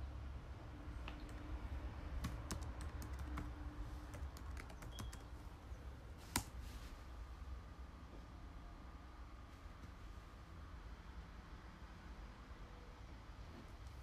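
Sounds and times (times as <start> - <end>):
keyboard typing clicks: 2.2 - 3.5, 4.1 - 5.3.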